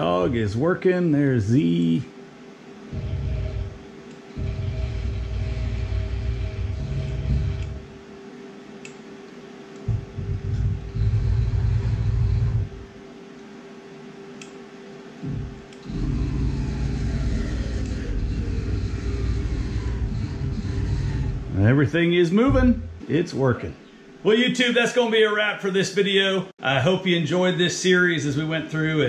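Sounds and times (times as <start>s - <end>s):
steady hum: 0.0s - 29.0s
mill axis motors whirring: 2.8s - 9.0s, 9.7s - 13.0s, 15.2s - 21.8s.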